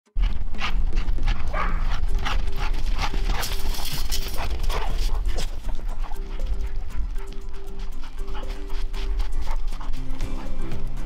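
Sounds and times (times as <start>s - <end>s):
dog paws galloping in snow: 0.2s - 11.0s
dogs barking: 0.6s - 11.0s.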